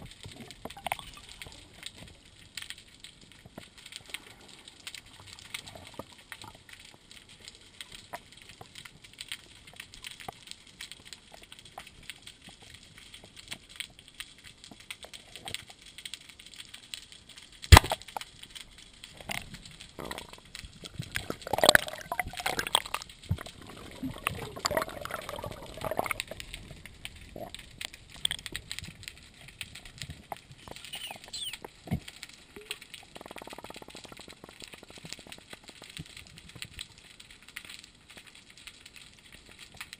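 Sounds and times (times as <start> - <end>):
underwater crackling and clicking: 0.0 - 39.9
muffled wavering sounds: 32.5 - 36.0.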